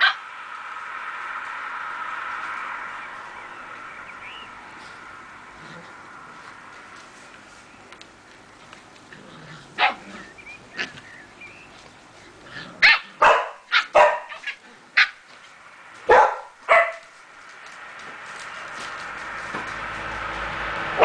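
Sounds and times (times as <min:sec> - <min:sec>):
puppies yapping and barking: 0:00.0 - 0:00.3, 0:09.6 - 0:11.9, 0:12.8 - 0:15.4.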